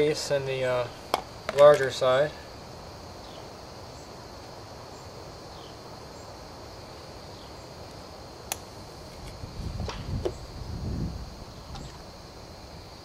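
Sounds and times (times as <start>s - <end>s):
sharp click: 8.5s - 8.7s.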